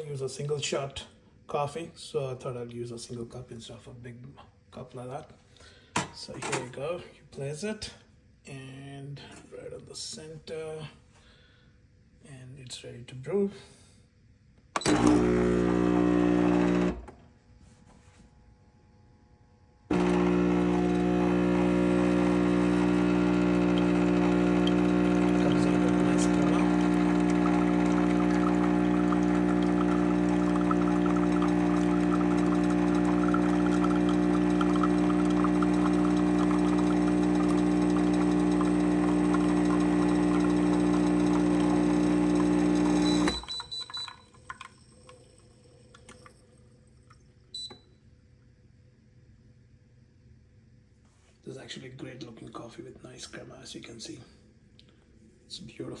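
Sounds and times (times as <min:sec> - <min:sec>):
espresso machine pump humming: 0:14.8 - 0:17.2, 0:19.9 - 0:46.6
faint drips and ticks: 0:24.6 - 0:40.5, 0:43.2 - 0:47.8.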